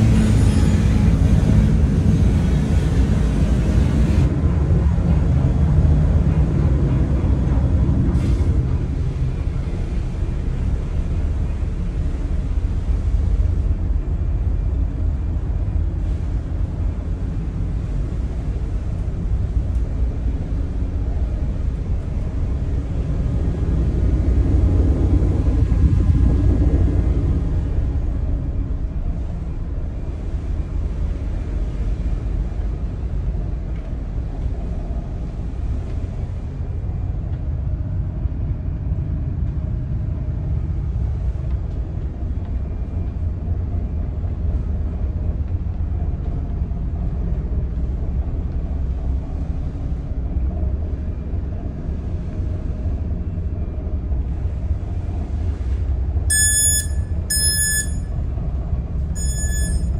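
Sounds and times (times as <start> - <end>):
low rumble of ship machinery: 0.0 - 59.9
short high electronic beeps: 56.3 - 58.1, 59.2 - 59.9.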